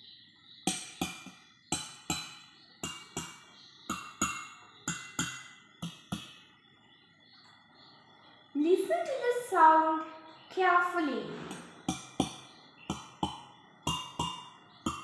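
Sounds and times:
spoon tapping ringing glasses: 0.7 - 6.3, 11.8 - 15.0.

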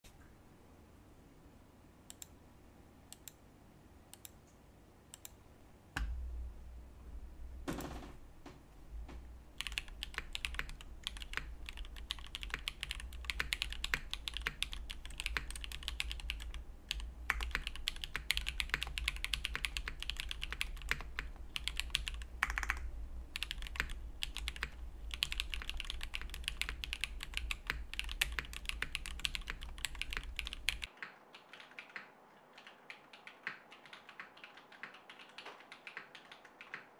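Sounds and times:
steady low hum: 0.1 - 33.2
mechanical keyboard typing: 9.6 - 36.9.

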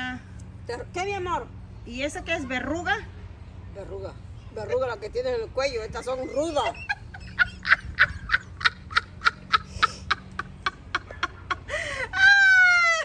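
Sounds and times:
high-pitched cackling laughter: 6.6 - 13.0.

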